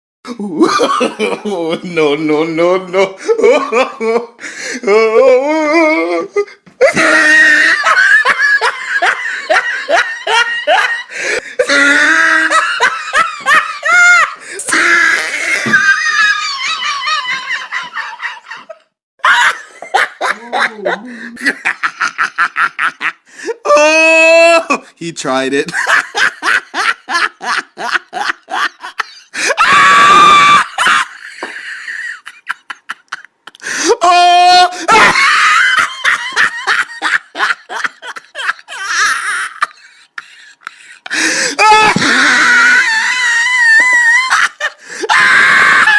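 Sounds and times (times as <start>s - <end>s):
person laughing hard: 0.3s - 1.9s, 2.9s - 24.9s, 25.7s - 45.9s.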